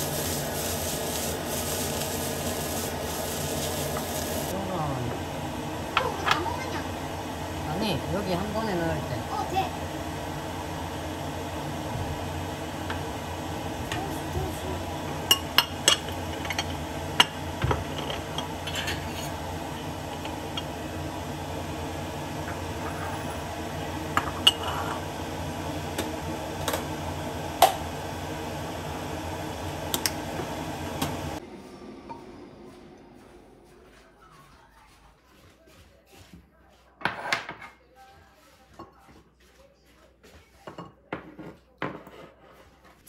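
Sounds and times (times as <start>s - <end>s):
steady background hum: 3.0s - 36.0s
dishes and utensils clinking: 15.3s - 19.4s, 24.2s - 25.0s, 40.6s - 42.4s.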